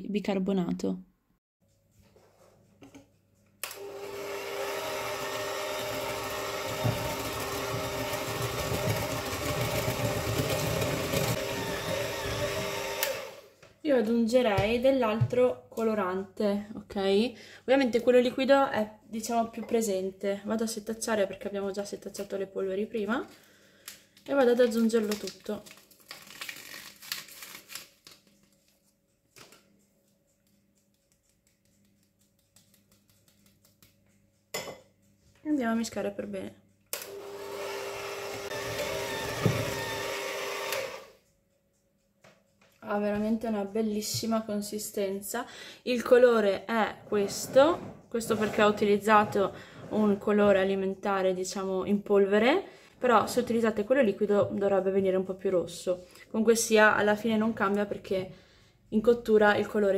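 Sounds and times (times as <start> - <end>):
electric hand mixer humming: 3.7 - 13.6, 37.0 - 41.2
scraper scratching through sieve: 47.0 - 50.4.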